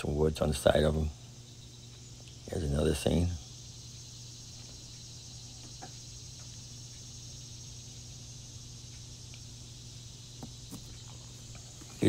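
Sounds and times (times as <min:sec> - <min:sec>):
cicadas trilling: 0:00.0 - 0:12.0
low steady hum: 0:00.0 - 0:12.0
faint ticks: 0:01.8 - 0:02.4, 0:08.8 - 0:09.6.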